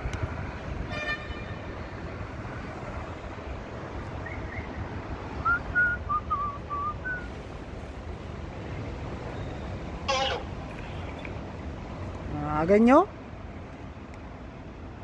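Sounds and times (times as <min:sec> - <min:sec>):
city traffic noise: 0:00.0 - 0:15.0
car horn toot: 0:00.9 - 0:01.7.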